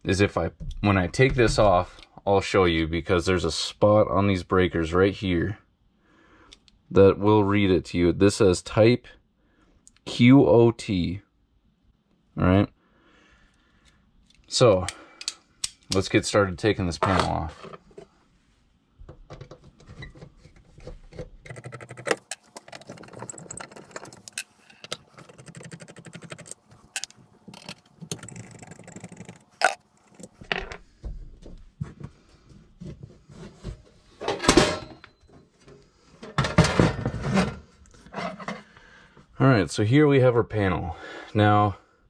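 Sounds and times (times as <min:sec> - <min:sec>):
screwdriver clicks and metal rattles: 0:21.0 - 0:30.4
metal cover scraping clatter: 0:34.2 - 0:35.0, 0:36.2 - 0:38.7.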